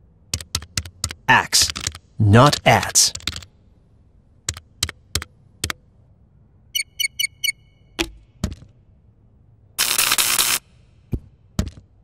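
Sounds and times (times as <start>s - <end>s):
keyboard key clicks: 0.3s - 2.0s, 4.5s - 5.8s
short high electronic beeps: 6.8s - 7.8s.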